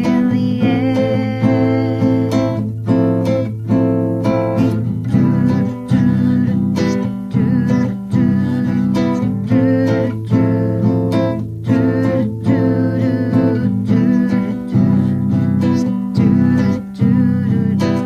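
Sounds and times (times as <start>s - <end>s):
strummed acoustic guitar song: 0.0s - 18.0s.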